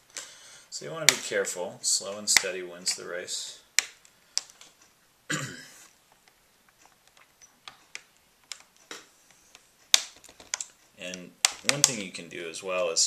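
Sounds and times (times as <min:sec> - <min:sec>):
plastic clips clicking: 0:03.8 - 0:04.9, 0:06.1 - 0:12.1.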